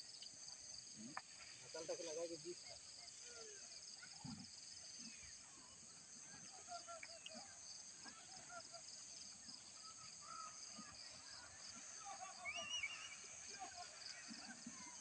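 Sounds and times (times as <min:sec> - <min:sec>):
insects buzzing: 0:00.0 - 0:15.0
birds chirping: 0:04.9 - 0:15.0.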